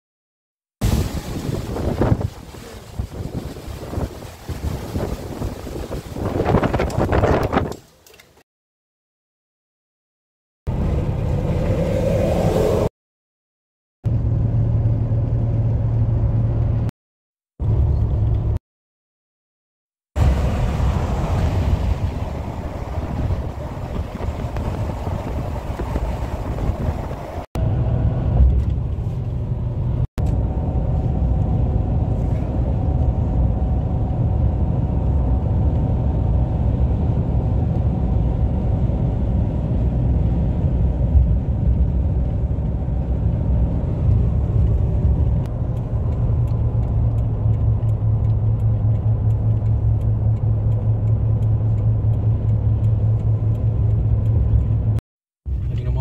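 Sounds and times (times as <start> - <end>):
wind hiss: 0.8 - 7.7
car tyres and engine rumble: 10.7 - 12.9, 14.1 - 16.9, 17.6 - 18.6, 20.2 - 56.0.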